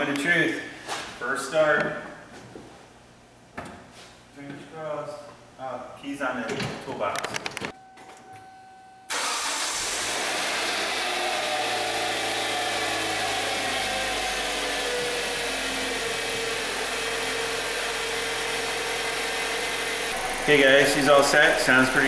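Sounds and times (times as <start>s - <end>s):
car engine idling: 9.2s - 22.0s.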